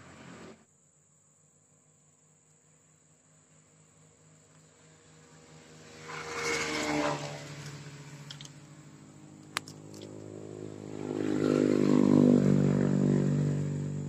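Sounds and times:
motor engine running: 0:00.0 - 0:00.6.

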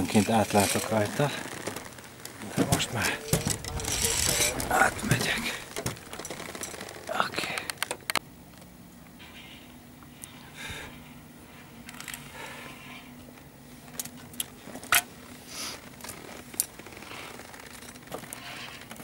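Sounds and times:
soft rustling: 0:00.0 - 0:07.1
footsteps on wooden planks: 0:00.7 - 0:08.0.

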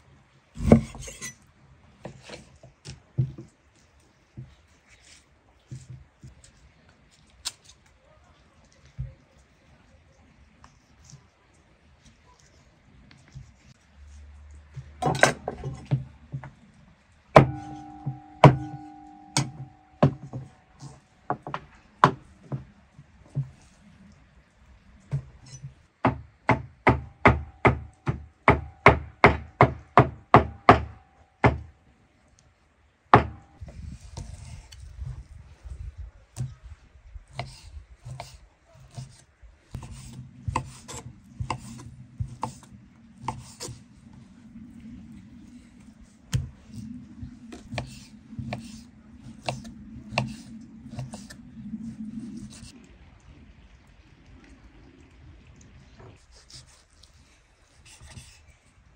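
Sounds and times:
knife chopping on wooden board: 0:17.4 - 0:20.4, 0:39.8 - 0:43.8, 0:47.5 - 0:51.4.

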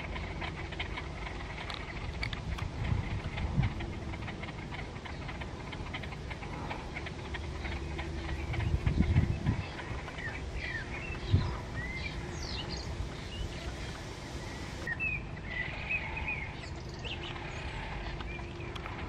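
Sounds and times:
low background rumble: 0:00.0 - 0:19.0
small birds chirping: 0:00.0 - 0:19.0.

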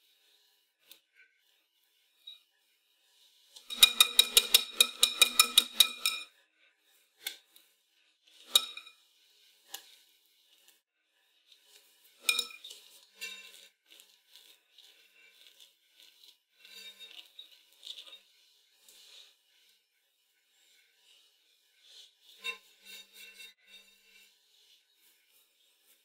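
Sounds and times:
knife scraping cream: 0:03.4 - 0:06.4, 0:08.3 - 0:10.8, 0:11.5 - 0:26.0
whisk clinking against metal bowl: 0:03.6 - 0:06.3, 0:08.4 - 0:08.9, 0:12.2 - 0:12.7.

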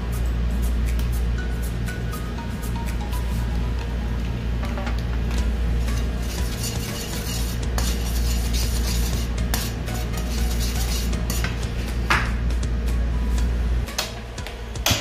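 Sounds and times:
steady low hum: 0:00.0 - 0:15.0
fork scraping frying pan: 0:05.9 - 0:11.6.

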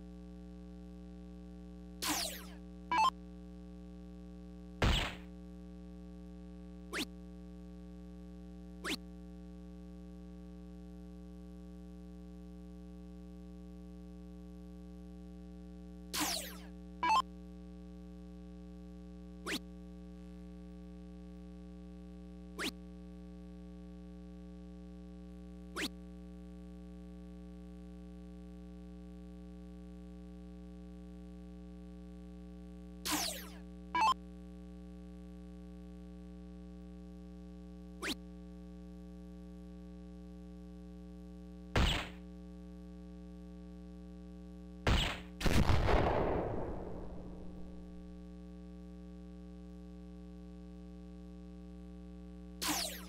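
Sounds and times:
steady electronic hum: 0:00.0 - 0:44.8, 0:46.5 - 0:53.0
falling electronic tone: 0:02.0 - 0:03.1, 0:52.6 - 0:53.0
loud thump: 0:04.8 - 0:05.3
darts hitting dartboard: 0:41.8 - 0:42.2.

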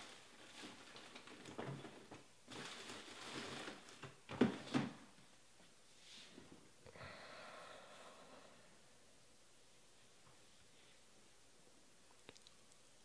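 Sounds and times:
rustling: 0:00.0 - 0:06.6.

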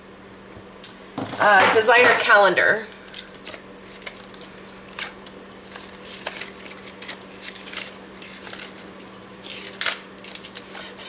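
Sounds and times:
paper pages rustling: 0:02.9 - 0:11.0.

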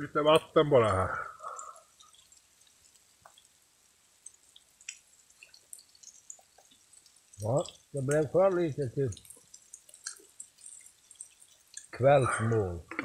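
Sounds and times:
faint water drips: 0:00.0 - 0:13.0
small ticks: 0:01.4 - 0:12.0
water pouring into a cup: 0:04.2 - 0:12.9.

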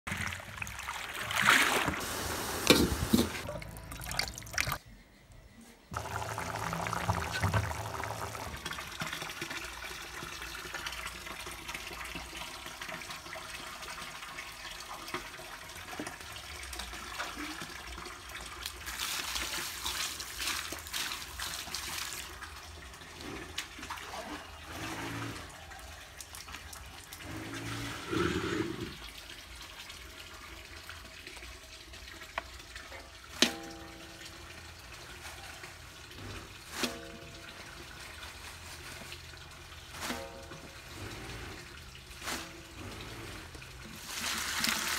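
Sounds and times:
steady hiss: 0:02.0 - 0:03.4.

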